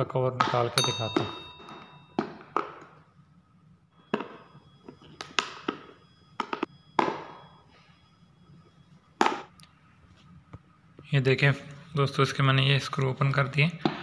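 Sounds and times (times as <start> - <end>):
short metallic ring: 0.8 - 2.3.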